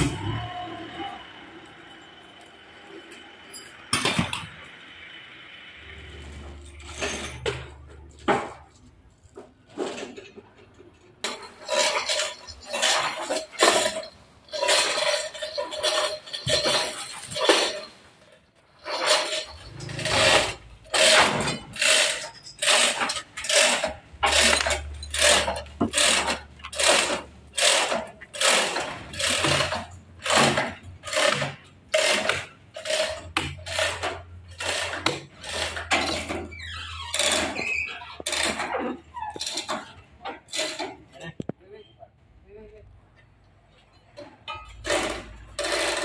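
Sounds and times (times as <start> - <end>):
hand chain rattling: 11.2 - 41.1.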